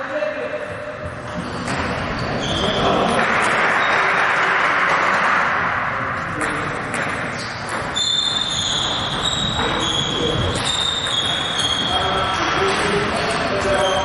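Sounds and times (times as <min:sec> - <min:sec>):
high squealing tone: 0:08.0 - 0:12.6.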